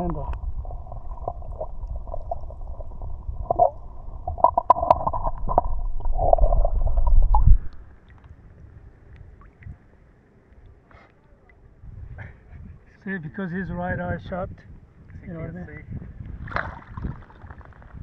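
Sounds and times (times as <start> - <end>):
underwater knocks: 0.0 - 7.8
muffled underwater churning: 0.0 - 12.5.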